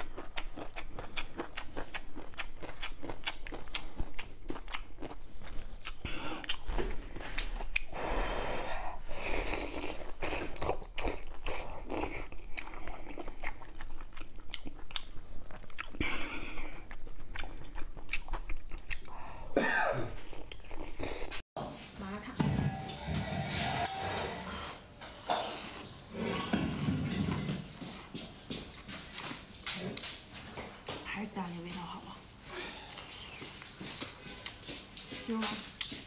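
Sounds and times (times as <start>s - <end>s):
person chewing food: 0.0s - 21.4s, 27.7s - 30.9s, 32.3s - 36.0s.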